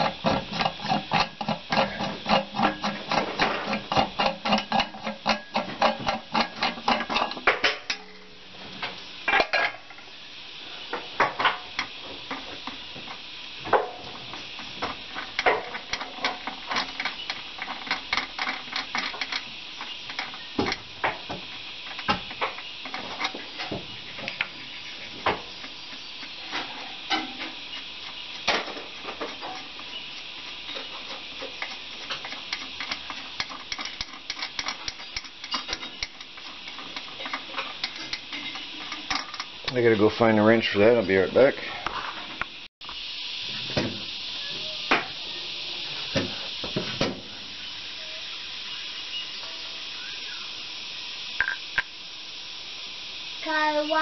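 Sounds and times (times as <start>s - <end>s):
steady high hiss: 0.0s - 54.0s
metal clicks and clinks: 30.7s - 39.8s.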